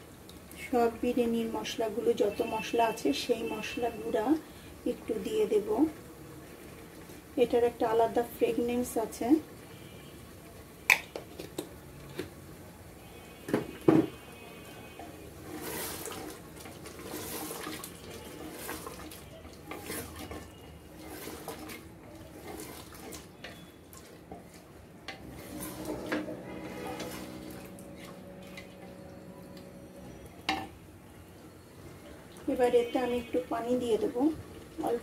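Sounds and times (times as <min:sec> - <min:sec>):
wooden spoon scraping a pot: 0:15.0 - 0:30.7.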